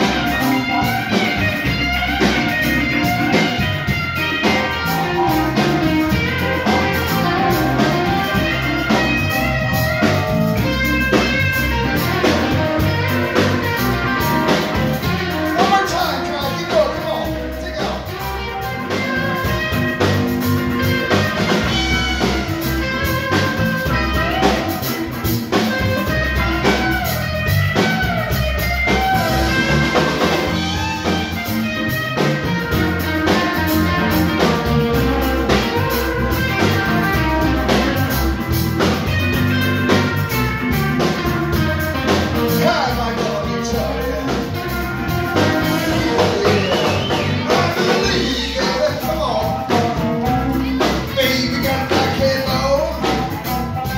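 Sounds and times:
drum kit: 0:00.0 - 0:53.9
electric guitar: 0:00.0 - 0:53.9
person singing: 0:14.6 - 0:18.3, 0:42.4 - 0:53.9.

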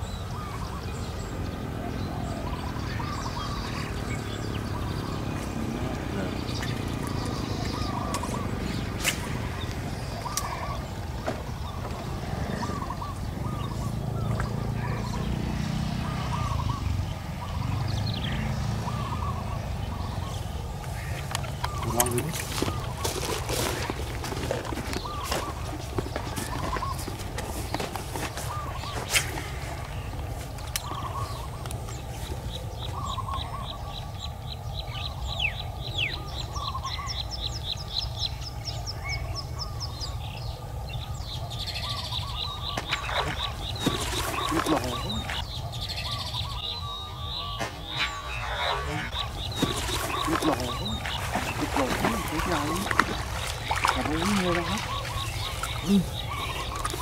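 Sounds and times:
bird chirps: 0:00.0 - 0:57.0
birds ticking calls: 0:00.0 - 0:57.0
small bird chirping: 0:41.3 - 0:57.0.

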